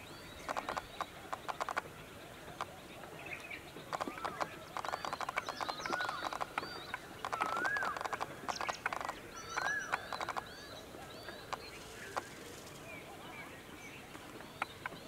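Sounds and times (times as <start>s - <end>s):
birds whistling: 4.1s - 8.0s.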